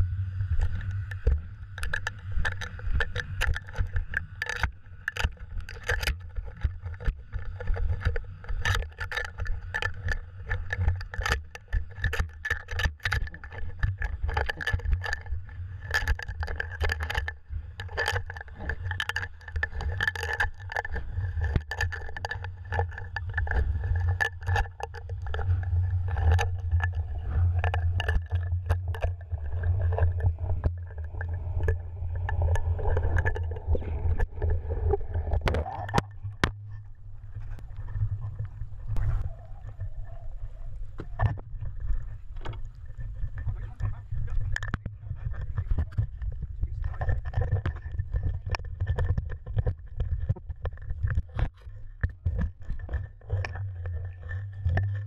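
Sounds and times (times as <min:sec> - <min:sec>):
muffled underwater rumble: 0:00.0 - 0:55.0
clicks and knocks from line: 0:00.6 - 0:39.9.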